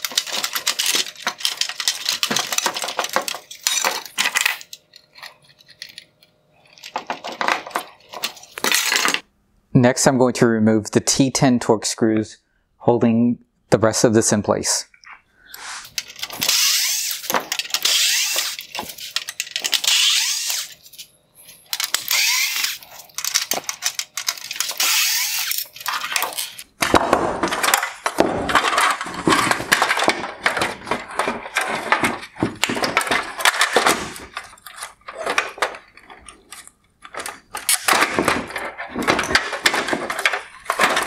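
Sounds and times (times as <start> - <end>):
plastic parts clicking and cracking: 0.0 - 9.2, 15.8 - 41.0
electric screwdriver whirring: 16.4 - 20.8, 21.8 - 22.8, 24.5 - 25.7.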